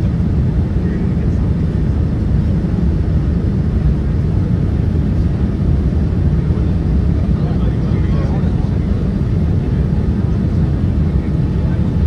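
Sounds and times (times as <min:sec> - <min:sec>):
aircraft cabin engine rumble: 0:00.0 - 0:12.0.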